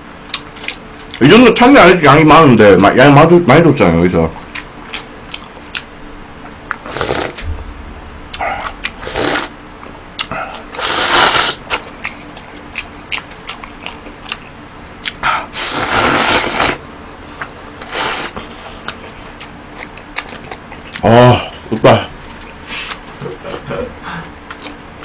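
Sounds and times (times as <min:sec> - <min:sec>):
person slurping noodles: 0:06.8 - 0:07.4, 0:09.0 - 0:09.5, 0:10.8 - 0:11.6, 0:15.6 - 0:16.8.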